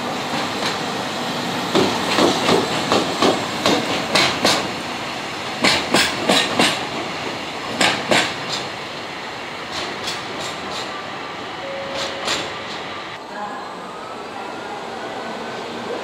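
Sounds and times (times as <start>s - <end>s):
train rolling rumble: 0.0s - 13.2s
train wheels clacking over rail joints: 1.7s - 4.8s, 5.6s - 8.7s, 9.7s - 11.0s, 11.9s - 12.8s.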